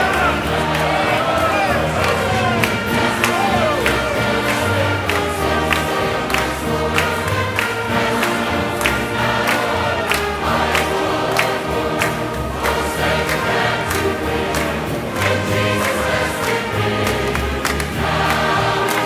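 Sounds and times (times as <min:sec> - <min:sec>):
steady beat: 0:00.0 - 0:07.0
choir singing gospel: 0:00.0 - 0:19.0
instrumental accompaniment: 0:00.0 - 0:19.0.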